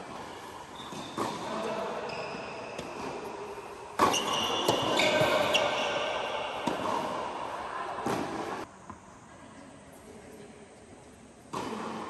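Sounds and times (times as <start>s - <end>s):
tennis ball struck by rackets: 0.9s - 1.5s, 2.8s - 5.8s, 6.5s - 7.4s, 8.0s - 8.7s, 11.5s - 12.0s.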